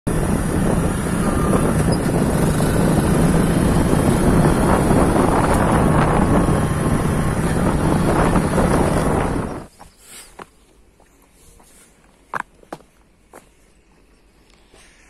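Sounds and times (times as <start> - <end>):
vehicle engine running: 0.1 - 9.7
wind noise on microphone: 0.1 - 9.8.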